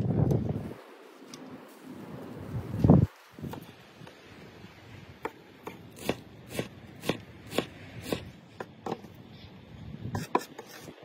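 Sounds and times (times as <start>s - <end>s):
knife chopping on wooden board: 5.2s - 8.3s.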